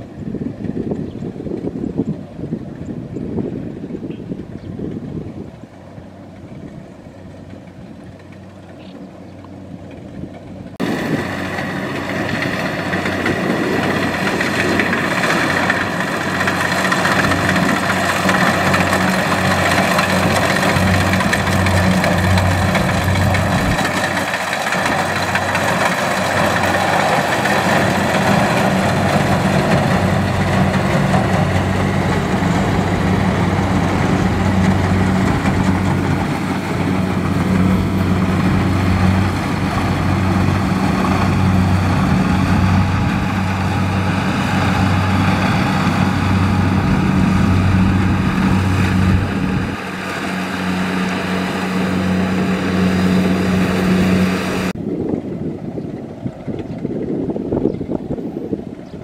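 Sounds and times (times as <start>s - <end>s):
combine harvester engine drone: 0.0s - 59.0s.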